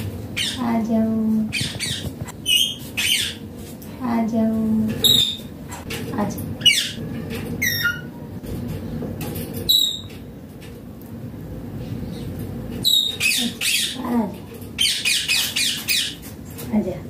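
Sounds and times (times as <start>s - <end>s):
parakeet squawking: 0.3s - 0.8s, 1.5s - 3.5s, 6.6s - 7.0s, 12.8s - 14.2s, 14.8s - 16.2s.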